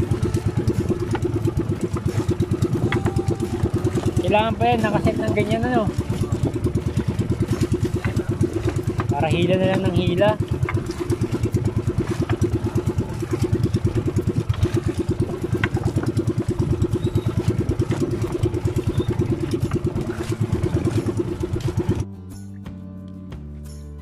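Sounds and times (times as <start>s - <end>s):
small boat engine pulsing: 0.0s - 22.1s.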